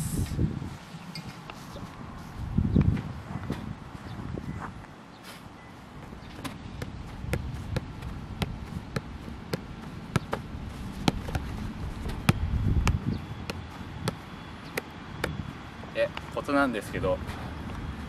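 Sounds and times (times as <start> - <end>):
foot tapping football: 6.0 - 15.4.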